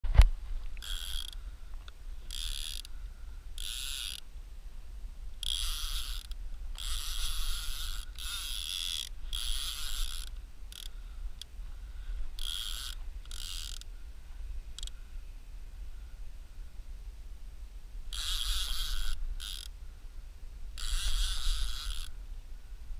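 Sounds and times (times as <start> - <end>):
fishing reel drag buzzing: 0.8 - 4.3, 5.3 - 14.0, 14.6 - 15.2, 18.1 - 19.8, 20.7 - 22.2.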